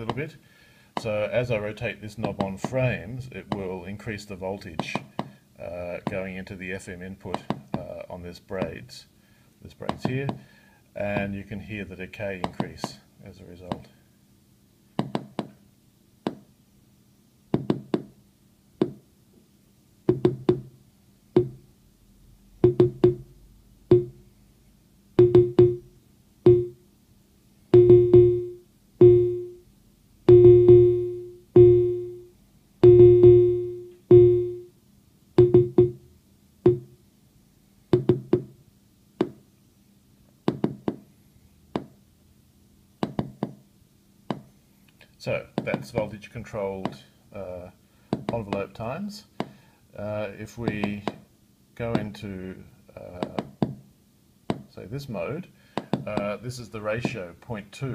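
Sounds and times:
synthesizer low plucked notes: 30.3s - 34.7s.

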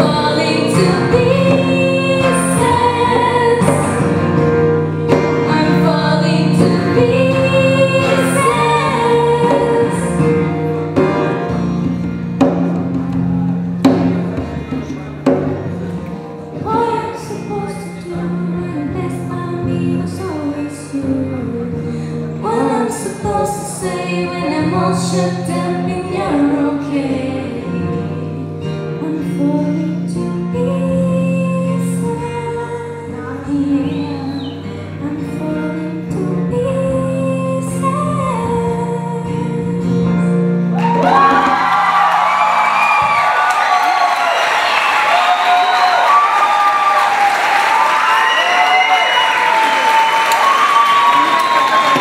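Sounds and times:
women singing: 0.0s - 4.4s, 5.1s - 10.4s, 16.6s - 40.4s
strummed acoustic guitar: 0.0s - 41.6s.

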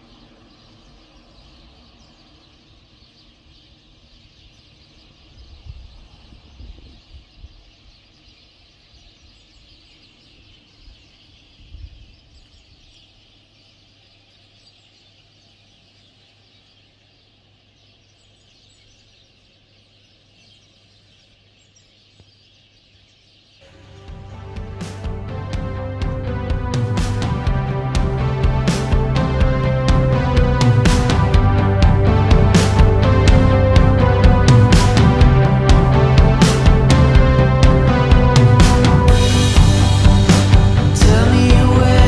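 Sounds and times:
small birds chirping: 0.0s - 26.8s
dull low thumps: 24.0s - 42.0s.

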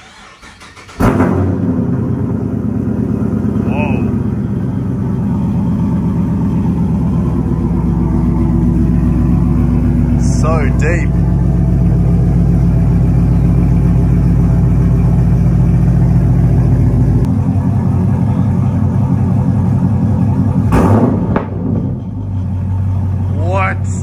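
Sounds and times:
engine revving burst: 0.0s - 5.2s, 20.7s - 22.2s
car engine idling with deep rumble: 0.0s - 24.0s.

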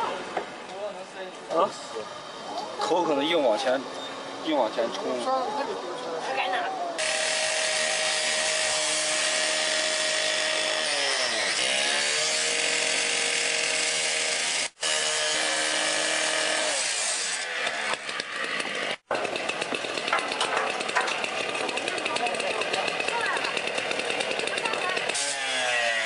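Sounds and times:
cut-off saw cutting metal pipe: 7.0s - 26.0s.

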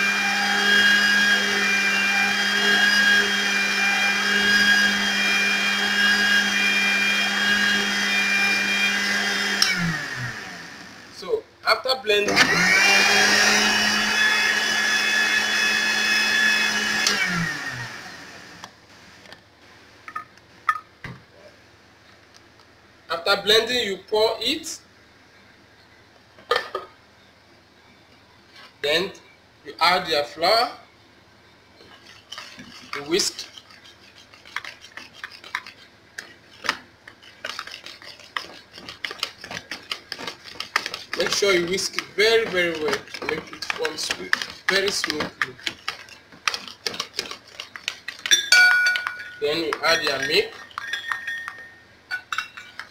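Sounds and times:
whisk swishing through batter: 0.0s - 10.0s, 31.8s - 51.4s
electric blender running: 0.0s - 11.2s, 12.3s - 18.7s
whisk clicking against bowl: 32.0s - 51.6s.

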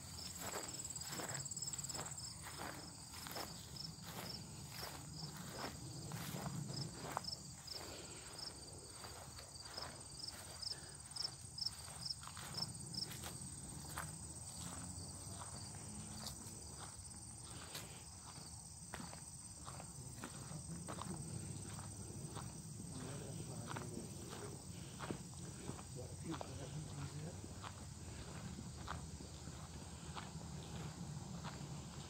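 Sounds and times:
high insect chorus: 0.0s - 32.0s
footsteps crunching through leaves: 0.1s - 11.0s.

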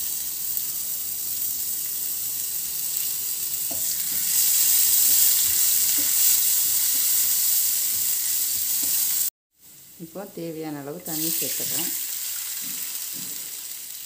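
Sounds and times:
spices sizzling in hot oil: 0.0s - 14.0s
spatula stirring in pan: 3.6s - 9.3s.

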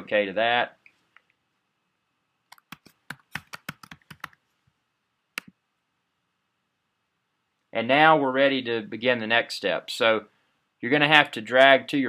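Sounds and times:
computer keyboard typing: 2.5s - 4.4s.

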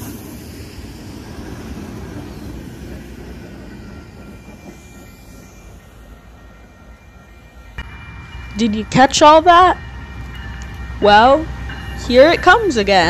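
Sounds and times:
diesel locomotive engine: 0.0s - 13.0s
train wheels on rails: 0.0s - 13.0s
faint high ringing tones: 3.4s - 13.0s.

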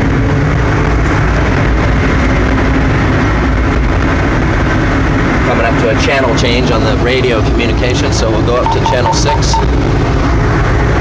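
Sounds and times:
diesel engine low rumble: 0.0s - 11.0s.

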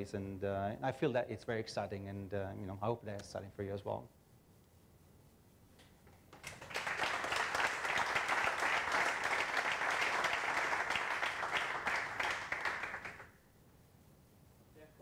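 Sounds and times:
audience applauding: 6.4s - 13.3s.

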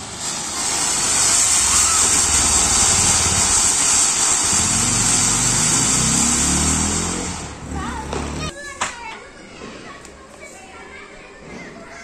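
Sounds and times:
firework fountain hissing: 0.0s - 8.1s.

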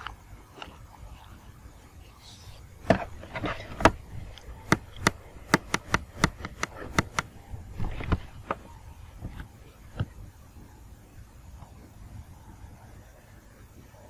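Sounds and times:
sharp irregular taps: 4.6s - 7.3s.

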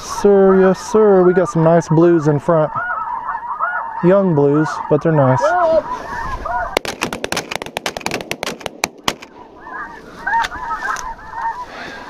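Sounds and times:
geese honking: 0.0s - 12.0s
rapid shotgun shots: 6.7s - 9.4s.

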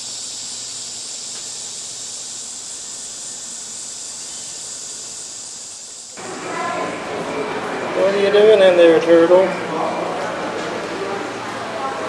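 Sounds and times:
insects buzzing: 0.0s - 6.8s.

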